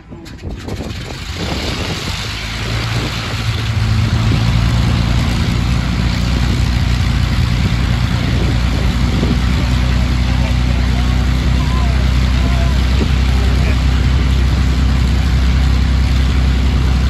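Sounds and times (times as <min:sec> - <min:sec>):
piston engine starting up: 0:00.0 - 0:05.4.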